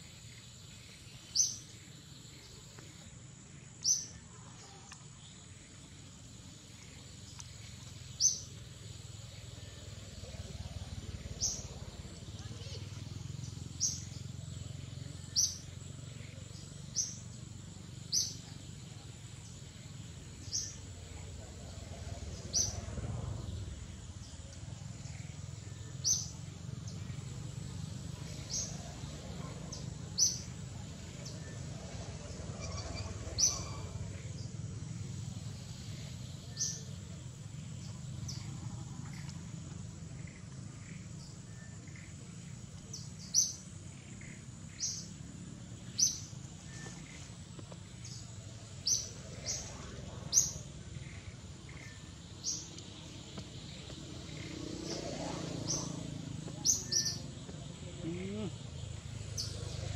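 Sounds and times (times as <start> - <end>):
bird chirping: 0.0 - 59.9.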